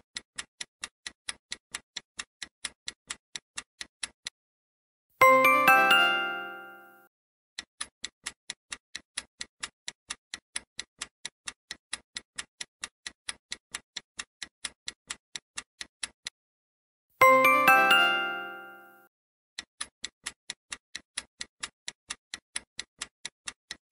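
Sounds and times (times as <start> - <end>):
clock-like ticking: 0.0 - 4.4, 5.2 - 6.9, 7.6 - 16.4, 17.2 - 18.9, 19.6 - 23.9
bell-like chime: 5.2 - 7.1, 17.2 - 19.1.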